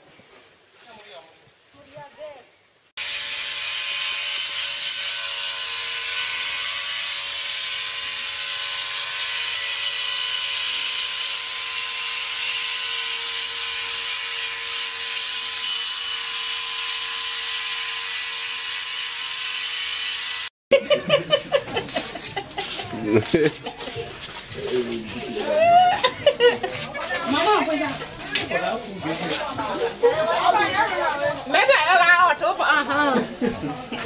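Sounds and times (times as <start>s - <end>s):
electric shaver buzzing: 3.0s - 20.5s
voices: 20.8s - 34.0s.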